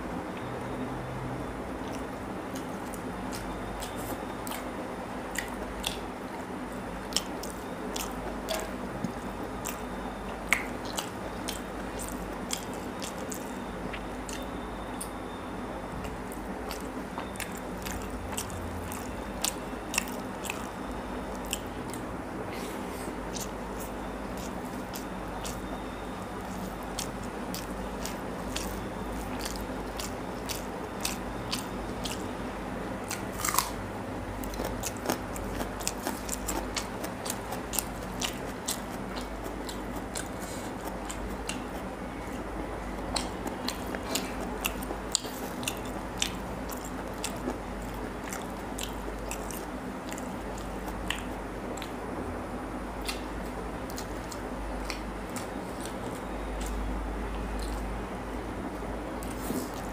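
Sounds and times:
low background hum: 0.0s - 59.9s
person chewing: 1.8s - 15.2s, 16.0s - 33.8s, 34.4s - 52.0s, 53.0s - 57.9s, 59.2s - 59.9s
wet mouth clicks and smacks: 10.5s - 14.4s, 43.1s - 47.5s, 48.3s - 52.0s, 53.0s - 53.3s.

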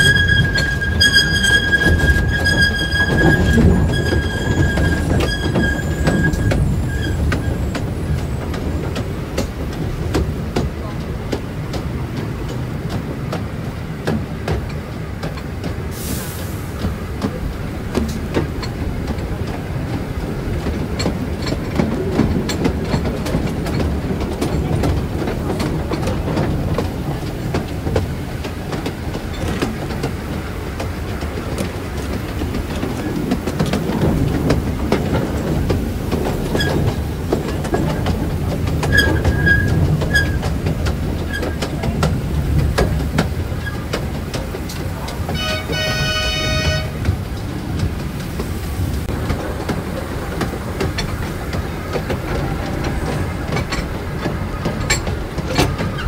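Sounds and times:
wheel squeals: 0.0s - 9.1s, 32.6s - 44.1s, 52.4s - 56.0s
train rumbling: 0.0s - 56.0s
wheels clicking over rail joints: 0.0s - 56.0s.

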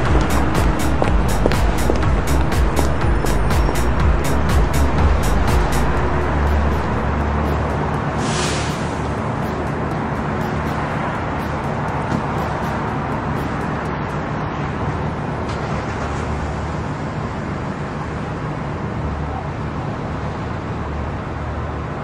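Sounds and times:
buffet restaurant hum: 0.0s - 15.0s
low drone: 0.0s - 15.3s.

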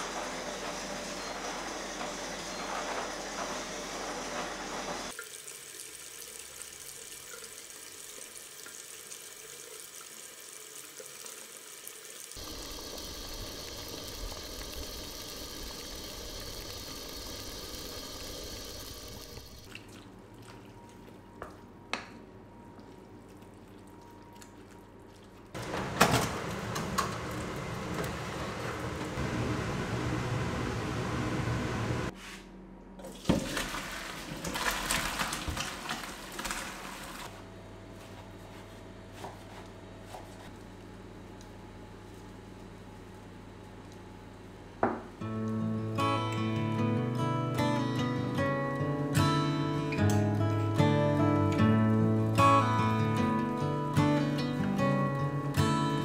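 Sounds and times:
running water at a sink: 5.1s - 21.0s.

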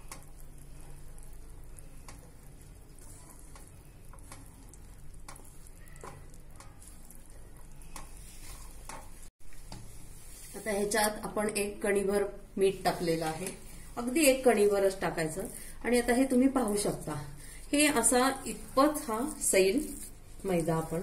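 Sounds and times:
spatula scraping and tapping pan: 1.8s - 11.2s.

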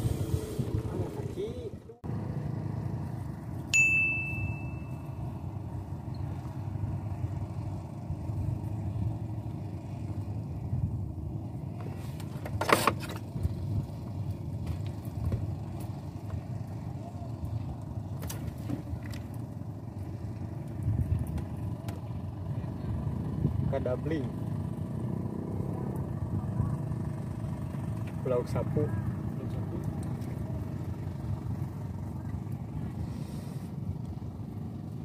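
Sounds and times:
low motor hum: 0.0s - 35.0s
metallic ping: 3.7s - 5.4s.

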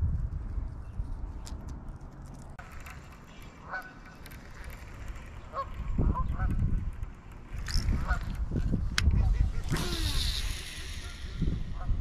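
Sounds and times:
geese honking: 3.6s - 4.2s.

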